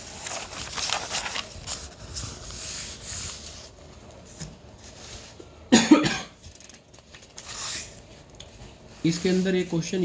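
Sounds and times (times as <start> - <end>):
notebook pages turning: 0.0 - 3.4.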